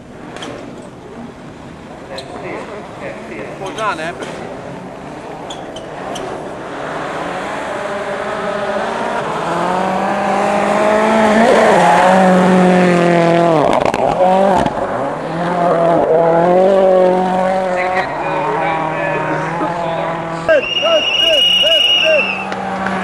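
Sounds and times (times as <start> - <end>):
rally car engine at high revs: 0.1 - 23.0
exhaust crackles: 9.9 - 23.0.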